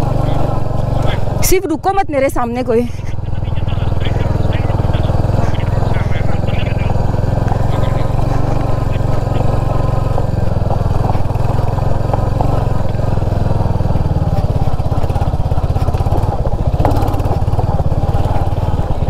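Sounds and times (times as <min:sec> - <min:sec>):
tyres rolling over gravel: 0:03.2 - 0:19.0
motorcycle engine thumping: 0:03.8 - 0:19.0.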